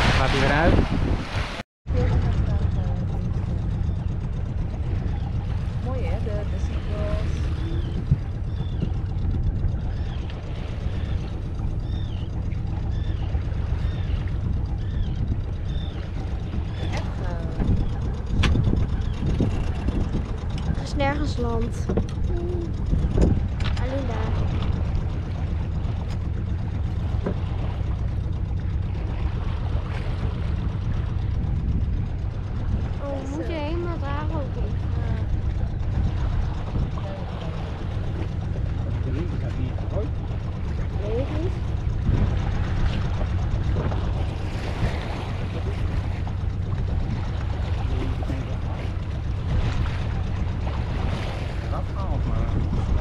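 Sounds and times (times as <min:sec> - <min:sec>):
low rumble aboard yacht: 0:00.0 - 0:53.0
chirping bird calls: 0:07.5 - 0:17.0.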